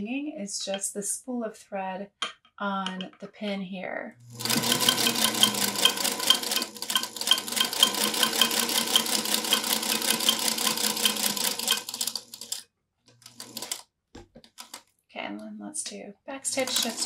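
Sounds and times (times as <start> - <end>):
sewing machine motor whirring: 4.2 - 12.6, 13.2 - 13.8, 16.5 - 17.0
thread spool rattling: 4.3 - 12.6, 16.5 - 17.0
sewing machine clattering: 4.4 - 12.6, 13.2 - 13.8, 16.6 - 17.0.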